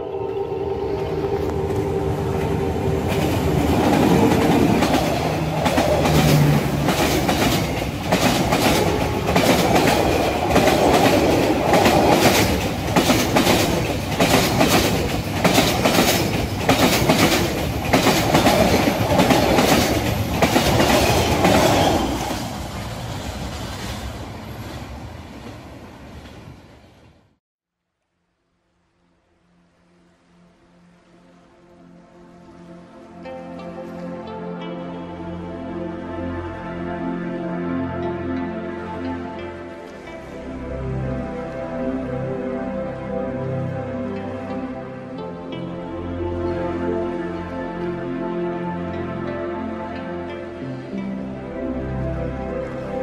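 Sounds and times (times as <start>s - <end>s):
diesel locomotive passing: 0.0s - 27.3s, 35.4s - 53.0s
train wheels clicking over rail joints: 3.1s - 22.4s.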